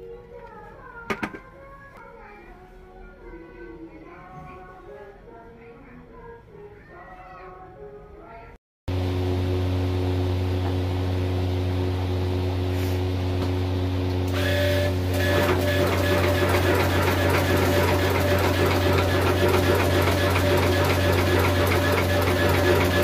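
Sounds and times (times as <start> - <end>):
machine motor humming: 8.9 - 23.0
rapid mechanical clatter: 15.1 - 23.0.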